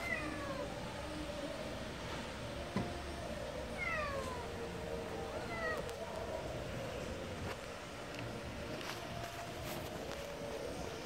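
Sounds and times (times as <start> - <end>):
cat meowing: 0.0 - 0.7, 3.8 - 4.4, 5.3 - 5.9.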